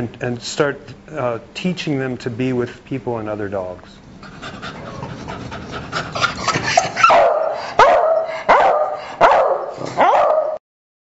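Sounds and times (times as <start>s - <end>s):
dog barking: 6.8s - 10.6s.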